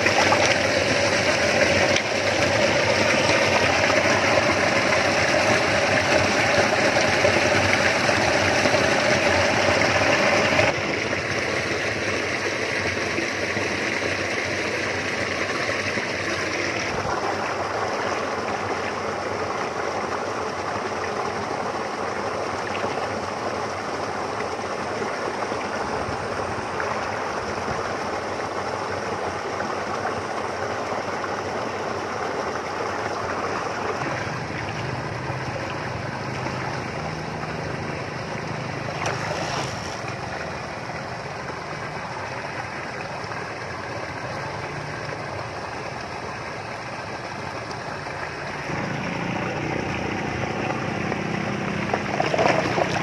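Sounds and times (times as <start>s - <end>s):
flowing water rushing: 0.0s - 53.0s
water pouring through mesh net: 38.1s - 40.4s, 48.7s - 53.0s.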